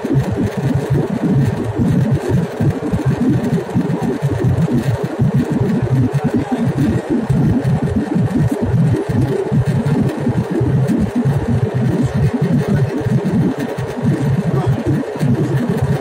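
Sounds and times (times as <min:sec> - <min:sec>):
jet airliner cabin rumble: 0:00.0 - 0:16.0.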